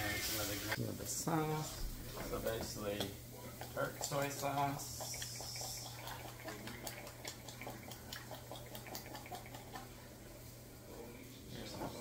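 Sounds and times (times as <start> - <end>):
small drips and clicks: 2.4 - 9.9
liquid trickling into a bowl: 2.9 - 10.4.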